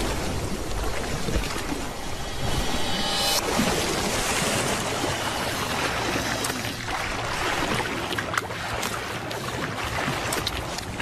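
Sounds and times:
water splashing and churning: 0.0 - 11.0.

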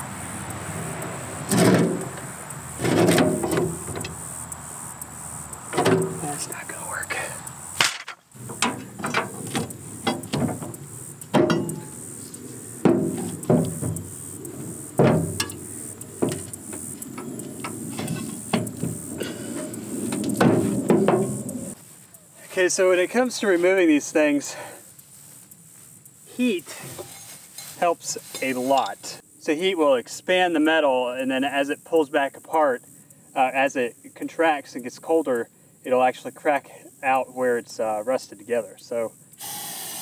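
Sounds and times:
heavy metal thuds: 1.4 - 4.4, 5.7 - 6.4, 7.7 - 21.8
steel tools clanking on metal: 7.8 - 14.1, 14.9 - 21.7, 26.7 - 29.0.

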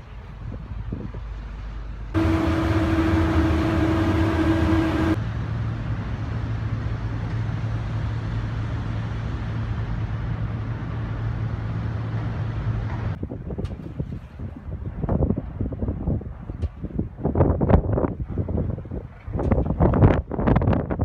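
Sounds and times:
ship engines humming: 1.8 - 13.2
loud steady tone with overtones: 2.2 - 5.2.

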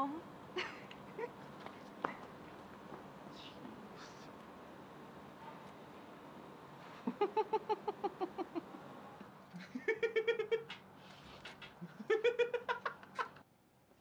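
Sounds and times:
man laughing: 7.0 - 8.8, 9.6 - 10.8, 11.8 - 13.4.

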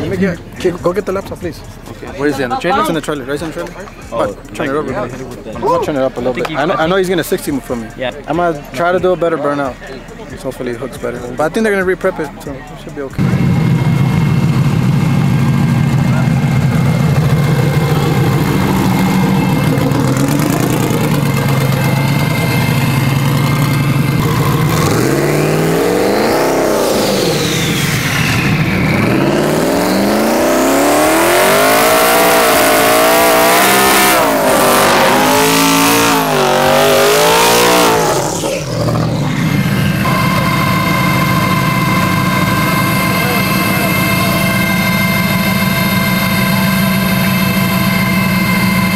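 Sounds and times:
truck engine revving: 13.1 - 48.9
spinning tyres hissing: 13.2 - 48.9.

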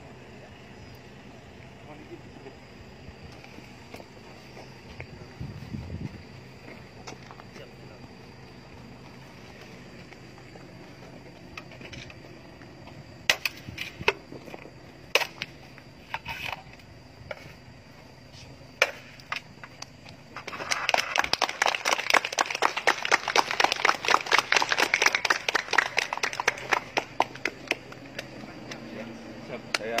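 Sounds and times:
people clapping: 20.4 - 28.9, 29.7 - 30.0.

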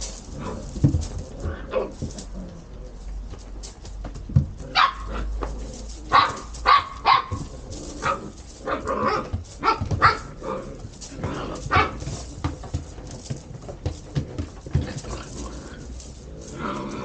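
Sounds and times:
puppies barking and yipping: 4.7 - 13.4.

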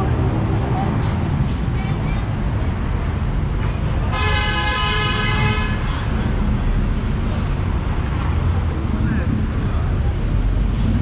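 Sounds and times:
low rumble of road traffic: 0.0 - 11.0
vehicle horn: 4.1 - 6.1.

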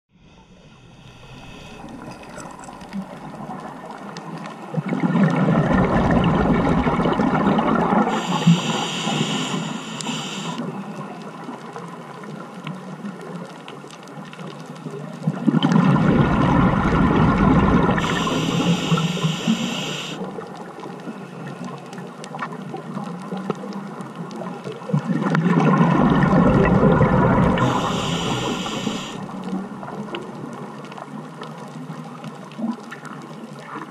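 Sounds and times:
regulator high hiss: 0.1 - 2.4, 8.1 - 10.6, 18.0 - 20.2, 27.6 - 29.3
underwater water wash: 0.1 - 33.9
regulator bubbles rumbling: 0.2 - 8.2, 15.3 - 19.7, 24.9 - 30.7.

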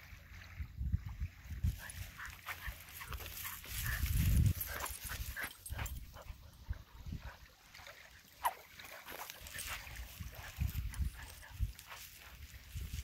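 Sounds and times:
wind rumbling on microphone: 0.0 - 7.5, 9.1 - 13.0
rustling through dry grass: 1.5 - 6.2, 8.8 - 13.0.

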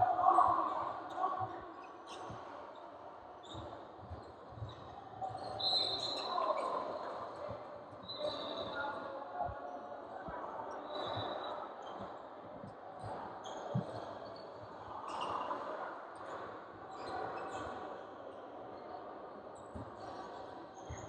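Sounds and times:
sneaker squeak: 3.4 - 7.0, 8.0 - 8.9, 15.0 - 15.6, 16.9 - 17.8.

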